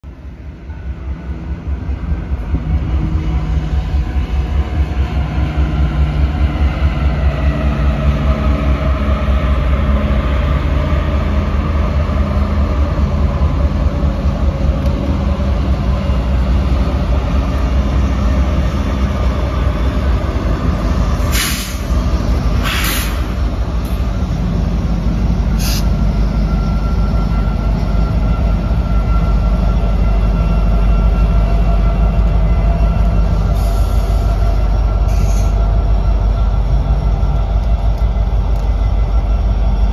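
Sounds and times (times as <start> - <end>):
diesel train rumble: 0.0 - 39.9
train cars clattering: 13.4 - 39.9.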